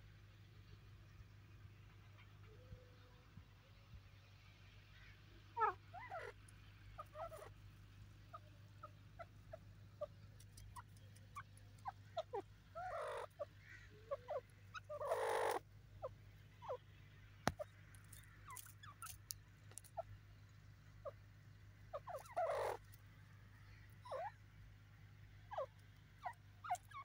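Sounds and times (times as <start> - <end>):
bird clucking and chirping: 5.5 - 7.6, 8.2 - 16.8, 21.9 - 22.9, 23.7 - 24.4, 25.5 - 27.0.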